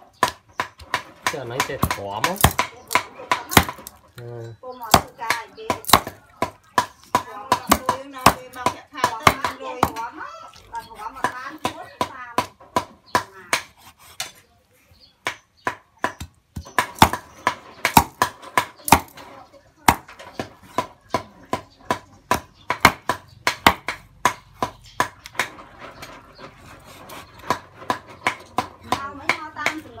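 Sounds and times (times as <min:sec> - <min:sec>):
cleaver chopping on wooden block: 0:00.2 - 0:04.0, 0:04.8 - 0:10.1, 0:10.8 - 0:14.4, 0:15.2 - 0:19.2, 0:19.8 - 0:25.6.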